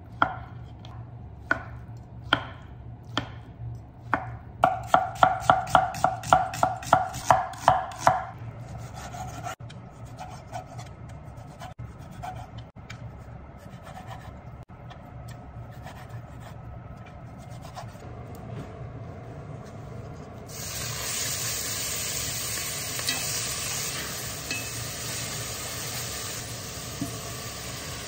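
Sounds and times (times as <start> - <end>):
knife cutting and scraping: 8.7 - 14.4.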